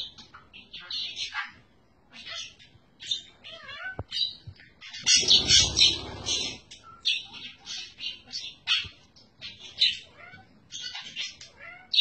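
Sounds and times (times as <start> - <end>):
budgerigar chattering: 5.0 - 8.9.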